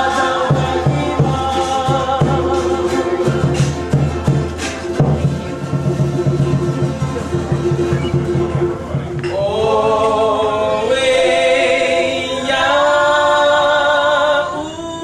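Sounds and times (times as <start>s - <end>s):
group of voices singing: 0.0s - 5.0s, 9.2s - 15.0s
drumming: 0.0s - 9.6s.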